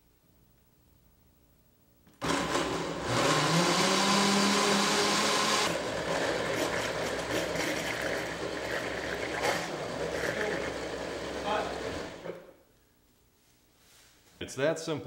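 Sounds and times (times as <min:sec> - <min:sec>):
blender motor running: 0:02.2 - 0:12.4.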